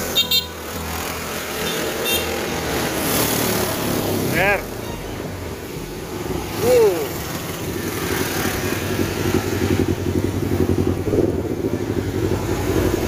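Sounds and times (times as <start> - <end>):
road and air noise: 0.0 - 13.0
motorcycle engine running: 6.6 - 13.0.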